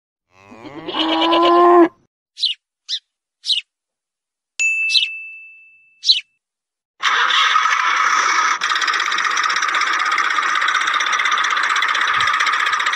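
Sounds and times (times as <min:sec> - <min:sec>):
quick high chirps: 0:02.4 - 0:03.6, 0:04.8 - 0:05.2, 0:06.0 - 0:06.3
bell-like ding: 0:04.6 - 0:06.1.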